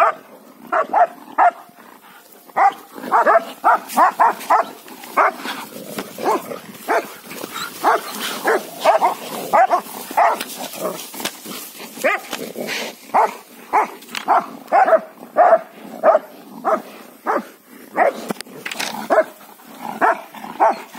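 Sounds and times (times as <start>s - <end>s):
dog barking: 0.0s - 1.8s, 2.6s - 5.4s, 6.2s - 7.2s, 7.8s - 11.0s, 12.0s - 12.4s, 13.1s - 18.2s, 19.1s - 19.4s, 20.0s - 20.9s.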